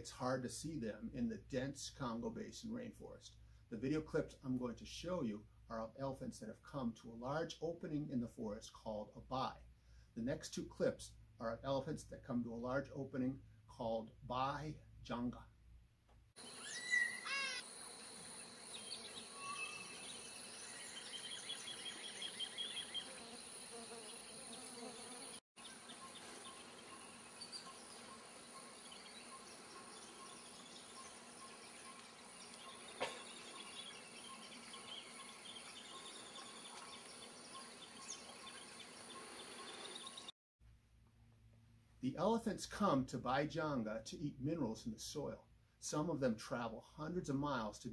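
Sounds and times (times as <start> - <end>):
insects droning: 16.4 - 40.3
bird whistles and chirps: 16.5 - 17.6, 19.4 - 20.0.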